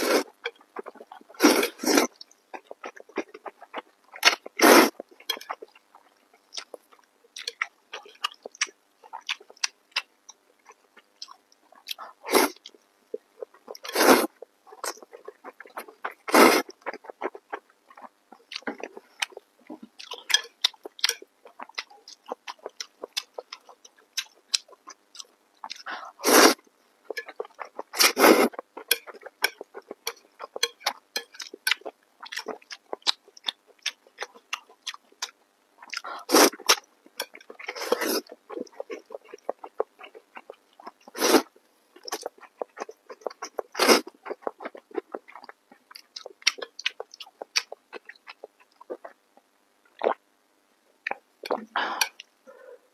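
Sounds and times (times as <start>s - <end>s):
slurping noodles: 0.0s - 0.4s, 1.4s - 2.1s, 4.6s - 5.0s, 12.3s - 12.6s, 13.8s - 14.3s, 16.2s - 16.7s, 26.2s - 26.6s, 27.9s - 28.5s, 36.3s - 36.8s, 37.7s - 38.3s, 41.1s - 41.5s, 43.7s - 44.1s
wet chewing and lip smacks: 27.1s - 41.2s, 42.0s - 50.2s.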